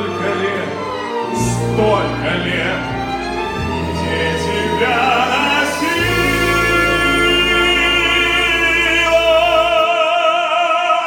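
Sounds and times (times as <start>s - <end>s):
symphony orchestra: 0.0s - 11.0s
low bass: 0.5s - 9.9s
man singing with vibrato: 1.4s - 11.0s.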